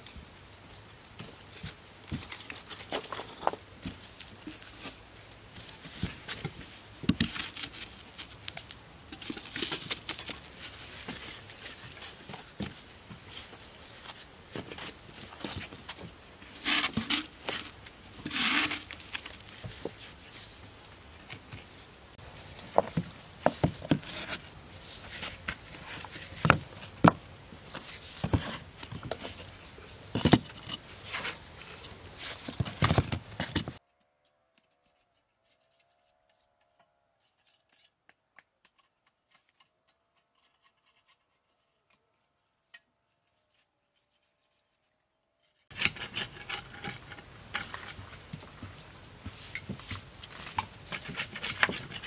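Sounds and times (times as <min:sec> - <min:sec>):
stone scraping on stone and cement: 0:45.7 - 0:48.2.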